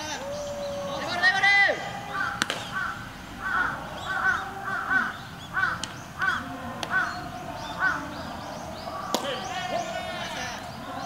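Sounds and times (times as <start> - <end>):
crow cawing: 0.0 - 10.6.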